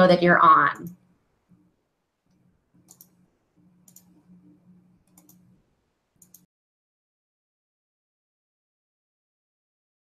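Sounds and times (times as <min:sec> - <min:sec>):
faint low hum: 0:00.0 - 0:06.5
faint sharp clicks: 0:02.3 - 0:03.2, 0:03.8 - 0:04.1, 0:05.0 - 0:05.4, 0:06.2 - 0:06.5.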